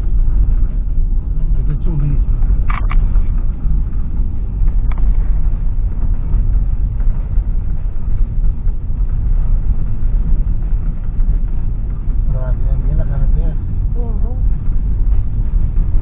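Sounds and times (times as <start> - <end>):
tyre and road noise: 0.0 - 16.0
vehicle engine: 0.0 - 16.0.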